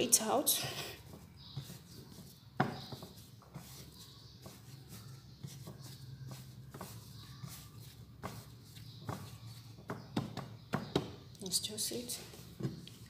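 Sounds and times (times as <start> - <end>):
hands tapping and rubbing dough: 0.1 - 13.0
dough knocking on board: 2.6 - 3.7, 8.2 - 11.2.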